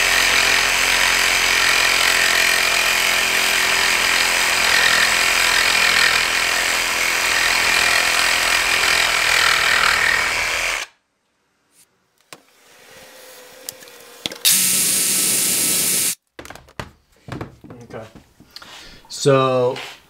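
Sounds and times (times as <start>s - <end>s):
reciprocating saw cutting bolt: 13.6s - 16.2s.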